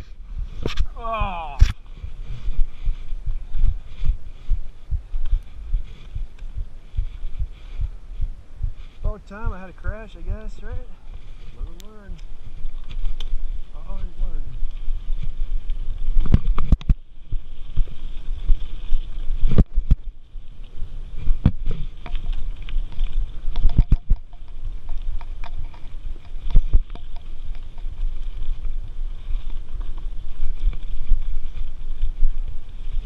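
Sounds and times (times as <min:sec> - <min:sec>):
wind rumble on microphone: 0:00.0 - 0:33.0
bike rattling and knocking: 0:21.2 - 0:33.0.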